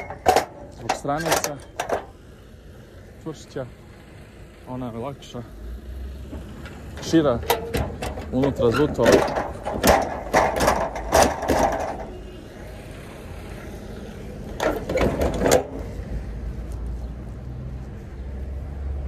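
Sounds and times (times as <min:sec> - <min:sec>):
metal latch handles clanking: 0:00.0 - 0:02.1, 0:06.6 - 0:12.2, 0:14.5 - 0:15.8.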